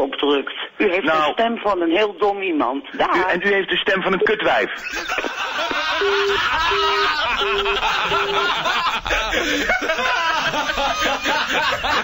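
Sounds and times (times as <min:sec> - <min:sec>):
men laughing: 0:04.8 - 0:12.0
telephone busy tone beeps: 0:06.0 - 0:08.6.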